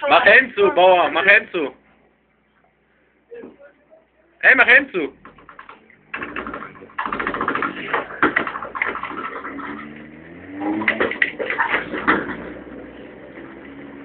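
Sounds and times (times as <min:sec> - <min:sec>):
vehicle engine running: 0:05.1 - 0:14.0
sled clattering and rattling: 0:05.2 - 0:13.7.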